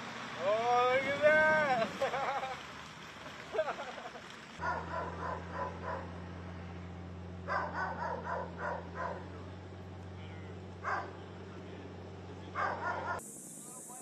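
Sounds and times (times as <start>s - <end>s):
dog barking: 4.6s - 6.2s, 7.5s - 9.3s, 10.8s - 11.2s, 12.5s - 13.2s.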